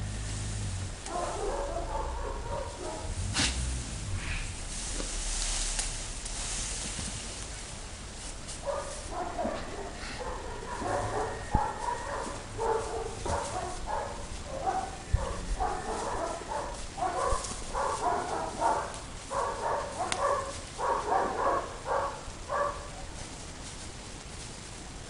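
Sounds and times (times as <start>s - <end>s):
dogs barking: 0.9s - 3.6s, 8.6s - 23.1s.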